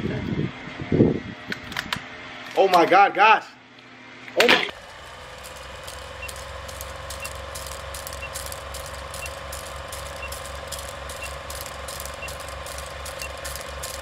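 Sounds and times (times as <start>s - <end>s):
film projector whirring clatter: 4.3s - 14.0s
short high blips: 5.4s - 14.0s.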